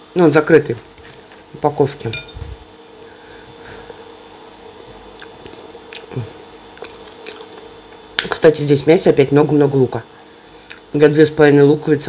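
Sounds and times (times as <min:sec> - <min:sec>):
faint steady hum: 0:00.0 - 0:12.0
mouth smacks: 0:05.2 - 0:06.2, 0:06.8 - 0:07.7
chewing food: 0:06.8 - 0:07.7.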